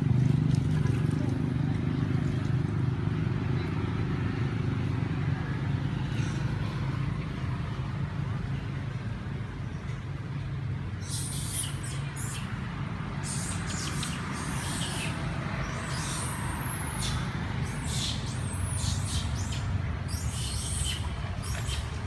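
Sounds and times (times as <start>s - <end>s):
animal squeaks and chirps: 11.0s - 12.6s, 13.2s - 21.9s.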